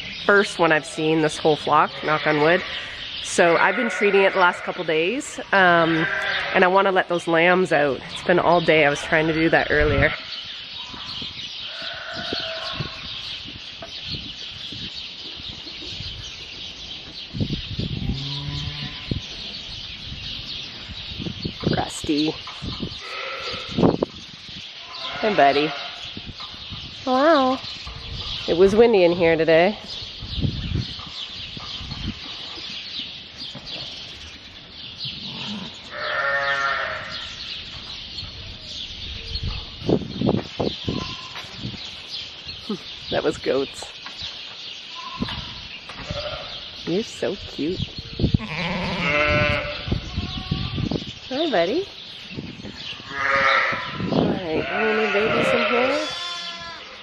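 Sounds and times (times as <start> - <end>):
small birds chirping: 0.0 - 57.0
ewe bleating: 1.9 - 4.9, 5.8 - 6.7, 11.7 - 12.9, 23.0 - 23.8, 24.8 - 26.0, 35.3 - 37.2, 48.4 - 50.9, 53.1 - 57.0
lambs bleating: 1.9 - 5.0, 5.8 - 6.7, 11.7 - 12.9, 23.0 - 23.8, 24.8 - 26.0, 35.3 - 37.3, 48.4 - 50.9, 53.0 - 57.0.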